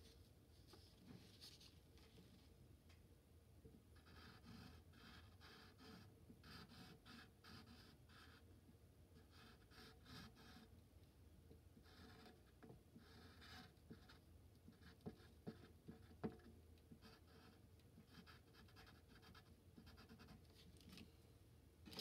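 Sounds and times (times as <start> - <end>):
pencil scratching on paper: 4.0 - 8.4, 9.2 - 10.7, 11.8 - 20.4.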